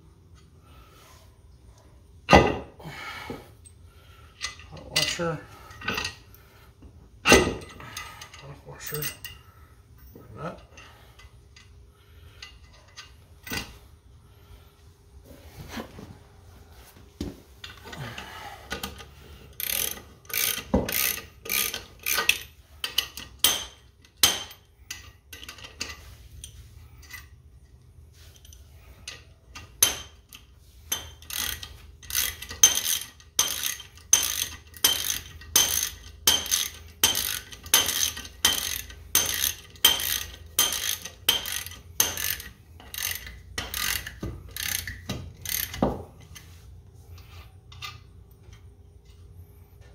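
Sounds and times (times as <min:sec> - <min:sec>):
ratchet wrench clicking: 0:18.7 - 0:27.3, 0:28.4 - 0:46.5.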